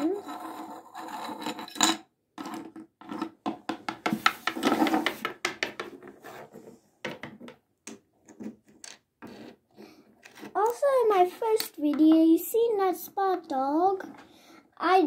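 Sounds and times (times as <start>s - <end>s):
plastic toys clicking and tapping: 7.1s - 9.1s, 10.2s - 12.3s.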